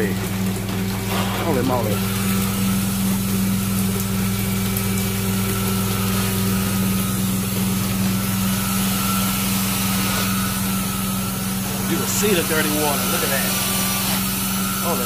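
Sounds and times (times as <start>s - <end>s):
cleaning machine hum: 0.0s - 15.0s
rushing suction of extraction wand: 8.3s - 15.0s.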